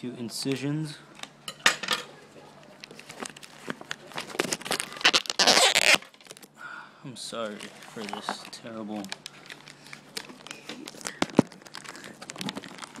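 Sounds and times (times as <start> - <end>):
plastic crinkling: 2.7 - 6.6, 7.3 - 13.0
knife cutting plastic wrap: 7.5 - 13.0.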